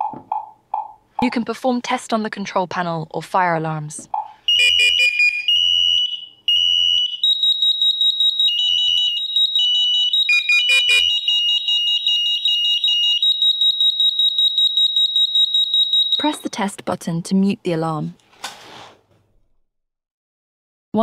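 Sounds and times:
rapidly pulsing alarm tone: 4.5 - 16.6
shrill alarm beeps: 4.5 - 16.6.

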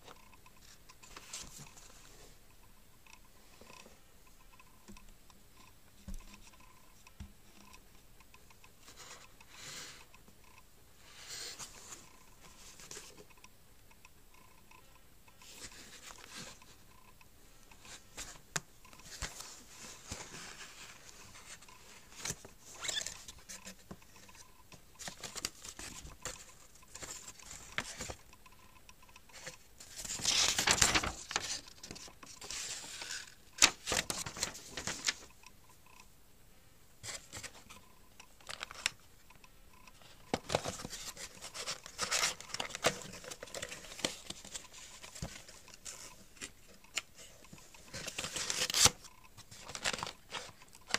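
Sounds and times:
cardboard and paper rustling: 1.0 - 2.2, 17.8 - 24.4, 25.0 - 28.2, 29.3 - 35.3, 40.0 - 50.9.

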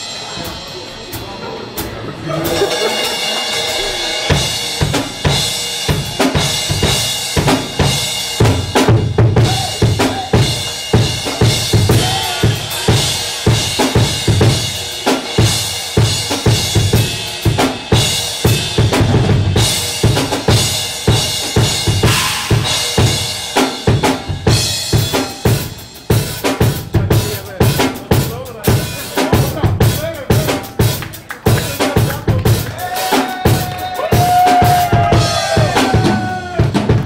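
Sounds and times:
fast drum strokes: 0.0 - 37.0
cymbal crashes: 19.5 - 23.9.

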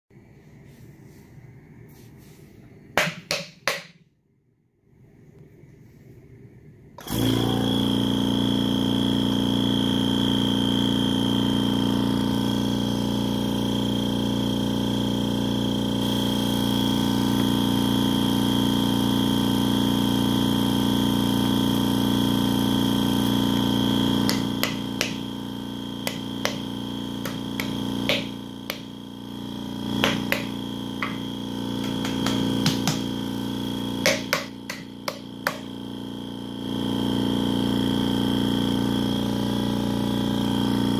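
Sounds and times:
spin coater humming and whining: 22.6 - 36.6.

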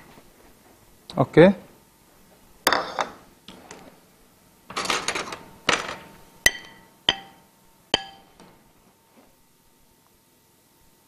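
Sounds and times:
utensil clinking on plate: 4.7 - 7.4.

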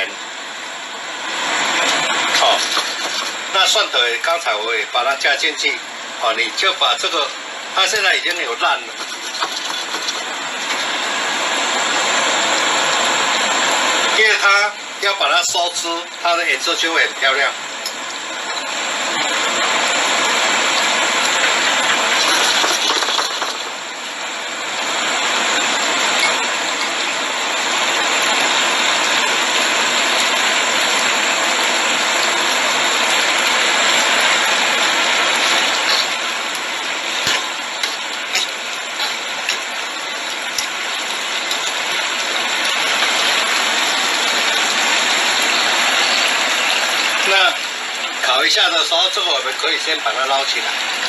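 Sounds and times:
chicken wings sizzling in a pan: 1.5 - 3.9, 7.8 - 11.6, 17.8 - 51.0.

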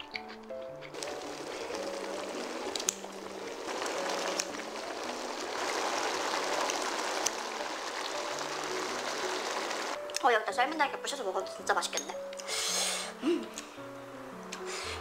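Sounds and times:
soft background music: 0.0 - 15.0
braise bubbling in a pan: 0.9 - 10.0.

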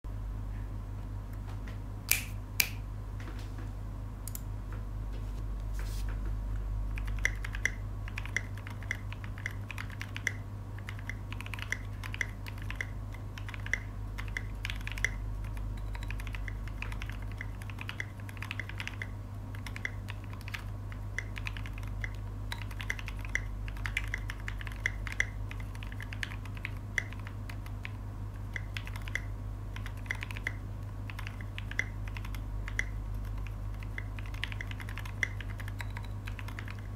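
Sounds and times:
separate clicks: 2.1 - 2.8, 4.3 - 4.5, 7.0 - 15.2
typing on mechanical keyboard: 7.0 - 36.9.

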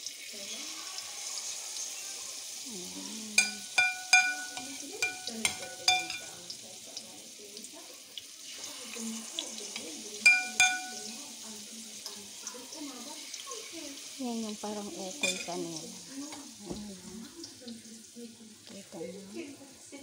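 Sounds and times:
oil sizzling in frying pan: 0.0 - 20.0
metal spoon clinking on pan: 3.4 - 6.5, 9.8 - 11.2, 15.2 - 15.6.

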